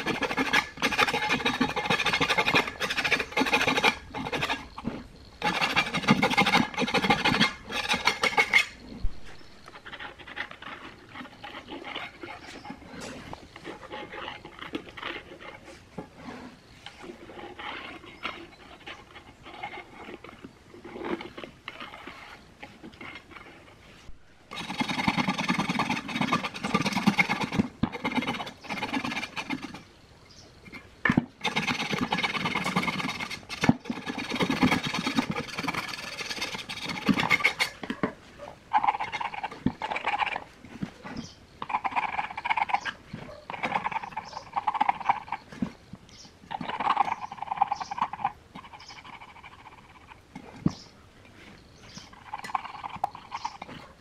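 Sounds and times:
knife scraping metal rim: 0:00.0 - 0:04.8, 0:05.4 - 0:08.8, 0:31.4 - 0:37.8.

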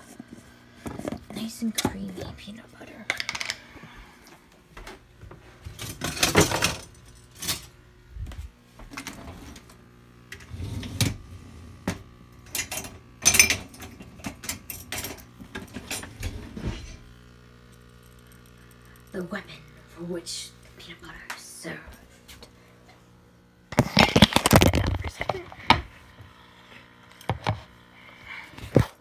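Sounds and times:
steady low hum: 0:00.0 - 0:29.0
dishes and utensils clinking: 0:12.6 - 0:15.2.

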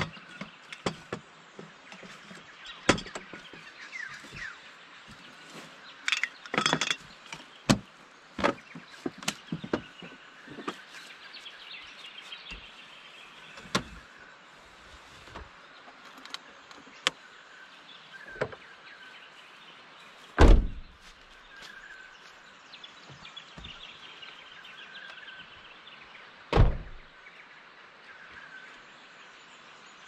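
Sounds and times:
birds chirping faintly: 0:00.0 - 0:30.0
metal table legs clicking and clanking: 0:06.1 - 0:07.4.

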